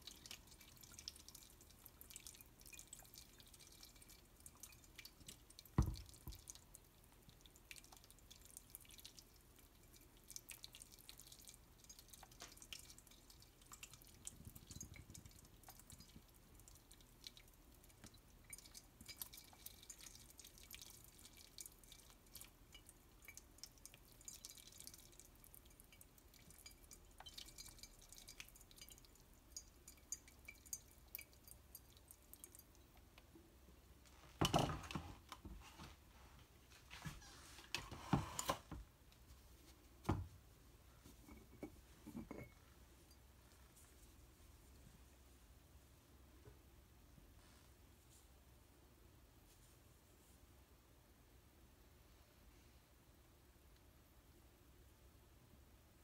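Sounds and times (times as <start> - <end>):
water trickling from kettle spout: 0.0 - 33.0
water dripping into sink: 0.0 - 33.3.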